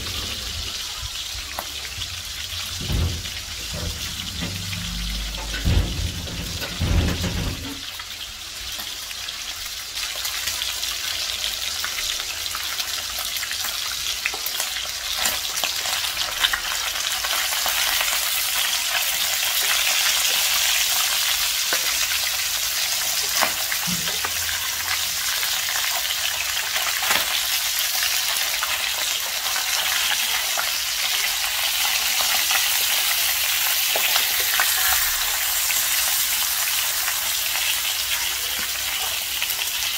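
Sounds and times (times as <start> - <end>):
fish sizzling in oil: 0.0 - 39.9
low knocks: 2.6 - 7.9.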